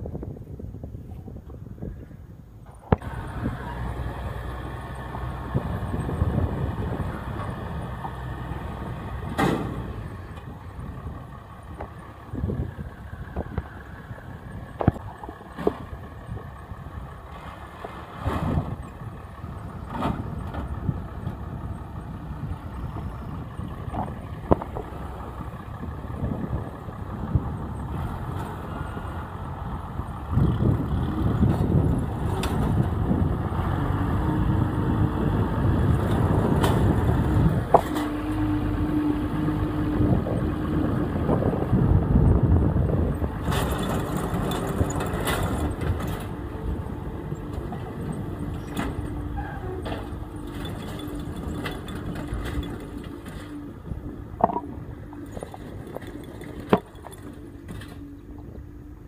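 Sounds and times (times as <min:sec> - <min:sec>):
tractor engine running: 0:00.0 - 0:59.0.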